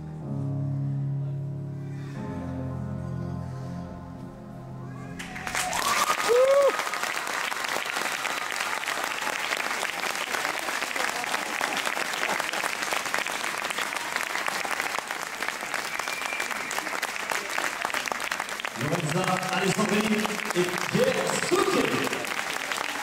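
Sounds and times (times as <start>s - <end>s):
music: 0.0s - 5.8s
crowd cheering: 5.0s - 23.0s
audience applause: 5.2s - 23.0s.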